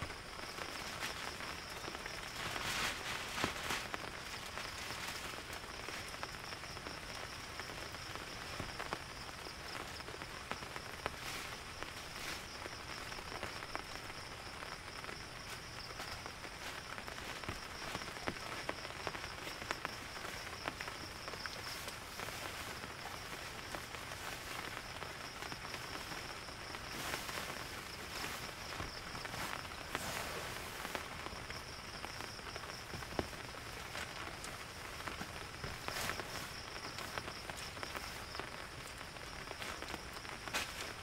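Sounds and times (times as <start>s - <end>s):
rain drops tapping: 0.0s - 41.0s.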